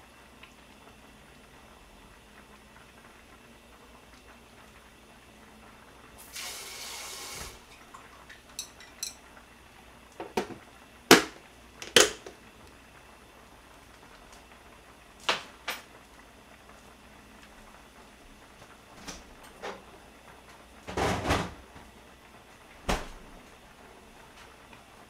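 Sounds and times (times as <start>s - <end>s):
short hiss: 6.2s - 7.6s
plastic lid clicks and knocks: 10.2s - 12.3s.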